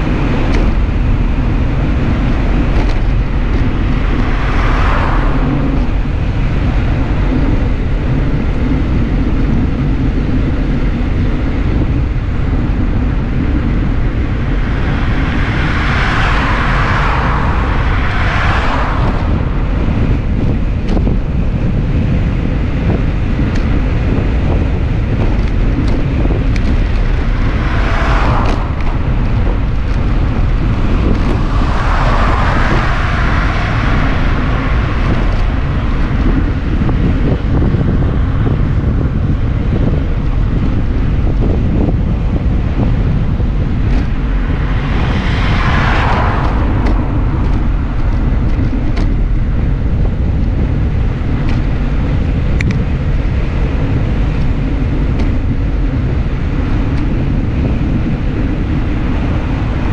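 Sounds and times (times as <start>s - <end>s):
wind buffeting microphone: 0.0s - 59.9s
passing car tyre hiss: 3.6s - 7.2s, 14.2s - 20.4s, 26.7s - 36.6s, 44.1s - 48.8s.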